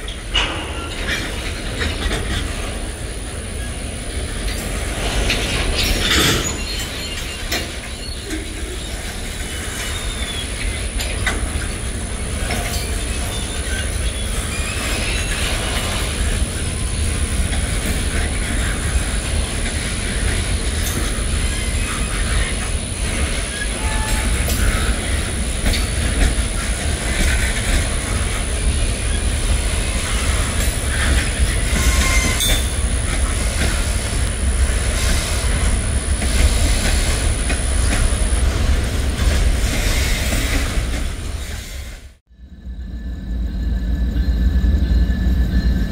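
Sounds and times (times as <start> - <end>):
freight train wheels rumbling on rail: 0.0 - 45.9
high-pitched wheel squeals: 20.8 - 25.9, 28.1 - 33.0.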